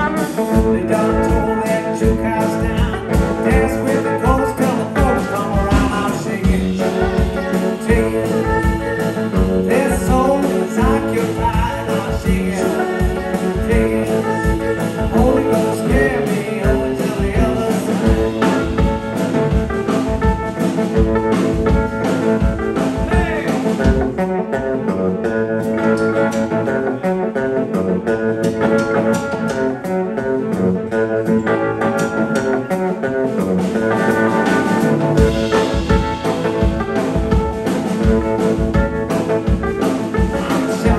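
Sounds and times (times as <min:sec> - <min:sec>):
person singing: 0:00.0 - 0:19.5, 0:37.9 - 0:40.9
blues band playing: 0:00.0 - 0:40.9
electric guitar: 0:00.0 - 0:40.9.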